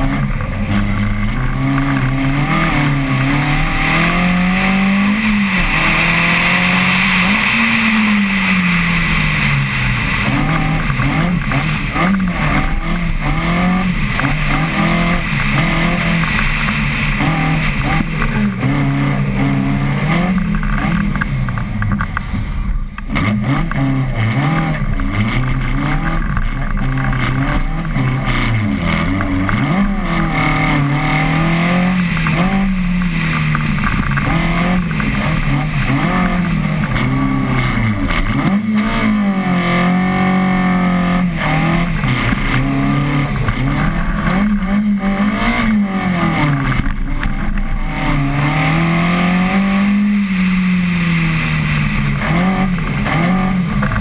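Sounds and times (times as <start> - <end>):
rally car engine revving: 0.0 - 54.0.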